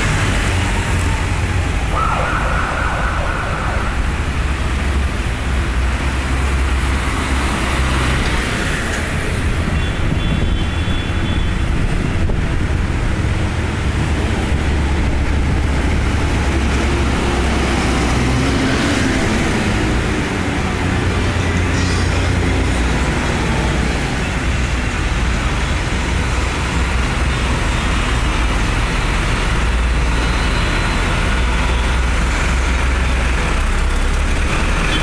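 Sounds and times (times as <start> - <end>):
street traffic: 0.0 - 35.0
tractor diesel engines rumbling: 0.0 - 35.0
high siren-like tone: 1.0 - 4.8.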